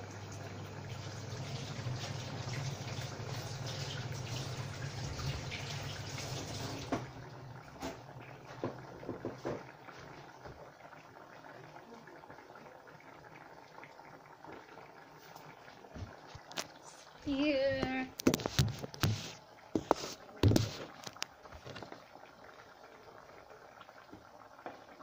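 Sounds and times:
tap running into sink: 5.1s - 7.2s, 7.8s - 10.7s, 17.7s - 22.0s.

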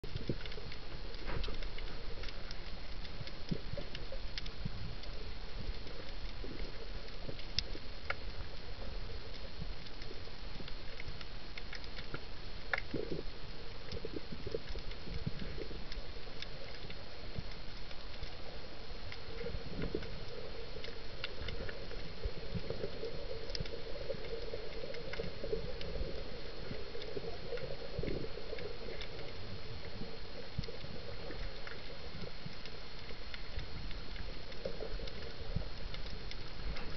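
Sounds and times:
sharp clicks and crackles: 0.0s - 36.9s
steady underwater hiss: 0.0s - 36.9s.

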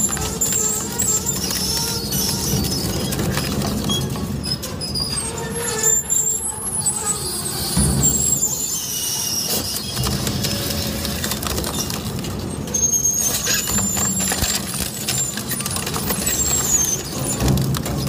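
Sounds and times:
high metallic squeals: 0.0s - 18.0s
metal crunching and grinding: 7.3s - 18.0s.

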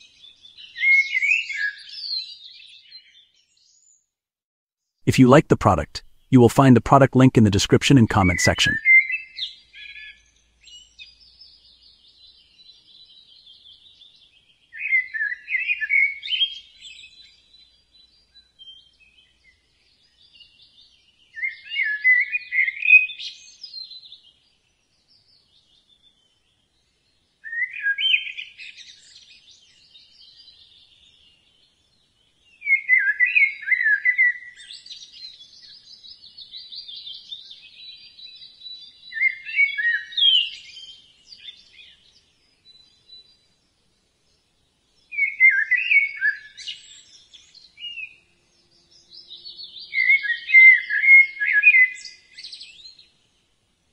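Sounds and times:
bird chirping phrases: 5.1s - 10.1s, 44.6s - 53.1s.

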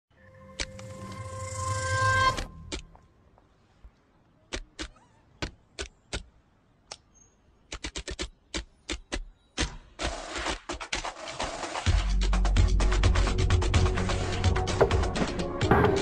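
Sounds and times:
swelling sound: 0.1s - 2.8s.

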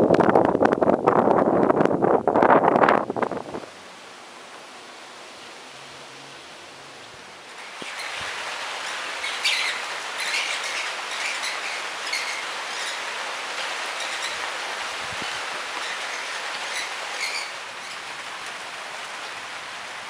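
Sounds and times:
steady rain hiss: 0.0s - 20.0s
birds chirping: 8.8s - 13.0s.

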